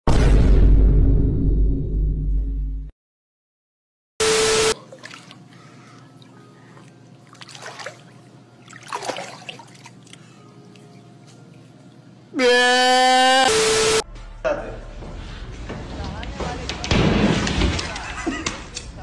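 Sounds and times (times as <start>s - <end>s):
water sloshing in a pool: 4.8s - 12.3s
loud held pitched tone: 12.4s - 14.1s
loud burst of noise: 13.2s - 14.0s.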